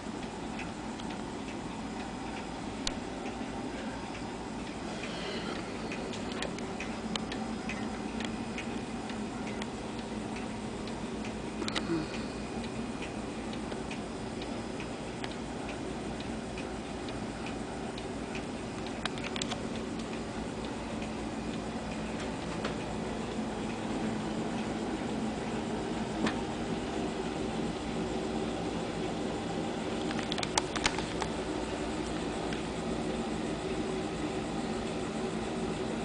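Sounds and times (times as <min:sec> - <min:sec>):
steady low hum: 0:00.0 - 0:36.0
clock clicks: 0:00.1 - 0:03.4, 0:05.9 - 0:12.0, 0:12.6 - 0:23.0, 0:30.0 - 0:31.3
clock ticking: 0:05.8 - 0:23.9.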